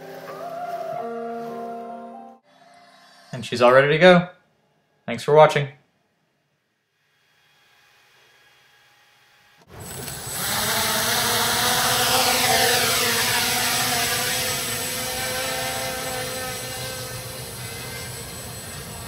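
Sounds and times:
drone motors buzzing whine: 0:07.0 - 0:19.0.

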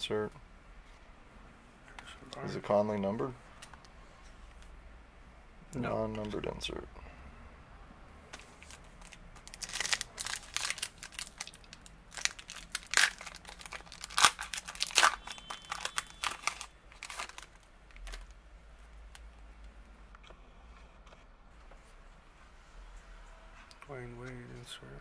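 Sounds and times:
foil wrapper tearing and crinkling: 0:08.6 - 0:18.3.

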